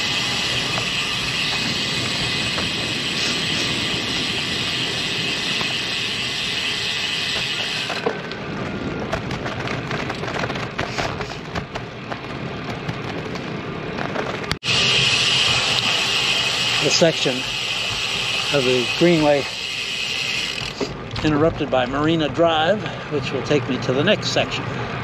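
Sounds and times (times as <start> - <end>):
bicycle freewheel ratchet buzzing: 0.0 - 8.2, 14.6 - 21.2
bicycle clicks and knocks: 0.0 - 23.1.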